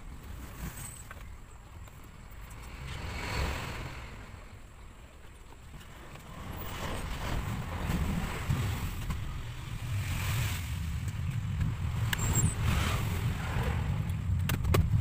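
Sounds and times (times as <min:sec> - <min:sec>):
wind buffeting microphone: 0:05.8 - 0:15.0.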